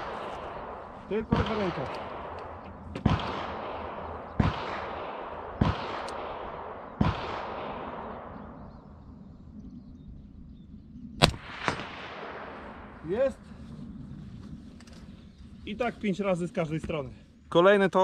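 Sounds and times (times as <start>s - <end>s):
rifle shots with rolling echo: 0.0s - 9.5s, 11.2s - 14.0s.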